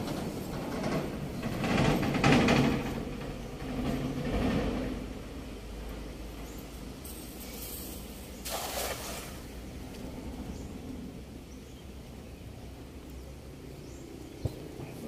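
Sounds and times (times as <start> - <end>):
steady low rumble: 9.3 - 15.0.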